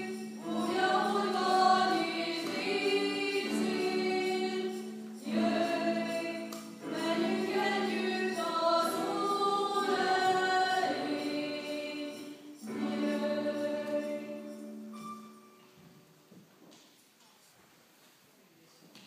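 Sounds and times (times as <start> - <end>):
young choir singing unaccompanied: 0.0 - 15.0.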